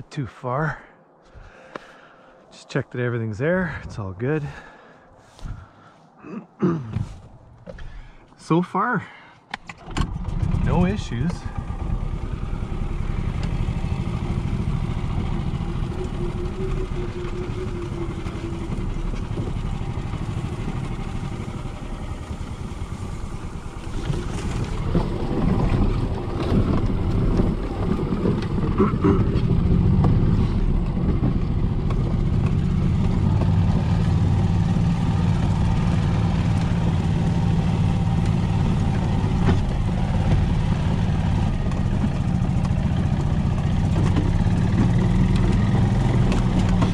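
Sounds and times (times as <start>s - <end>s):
golf cart motor humming: 9.8s - 46.9s
knocks and rattles: 38.2s - 46.9s.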